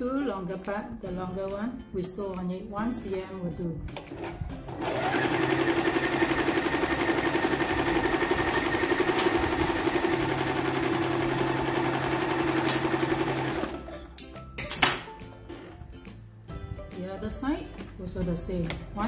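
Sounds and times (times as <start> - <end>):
sewing machine running: 4.2 - 13.9.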